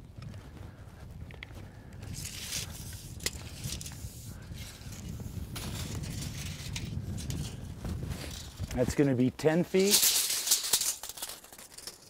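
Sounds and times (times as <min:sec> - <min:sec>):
tape measure scraping: 0:02.1 - 0:09.1, 0:09.7 - 0:12.0.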